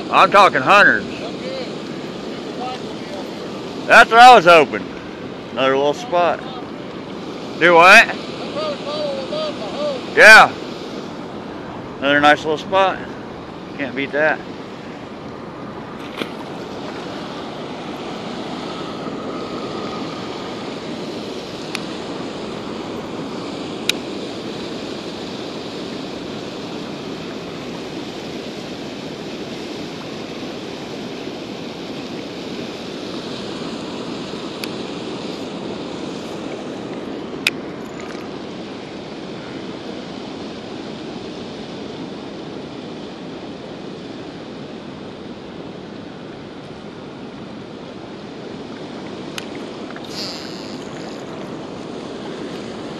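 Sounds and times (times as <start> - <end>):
water rushing over spillway: 0.0 - 52.9.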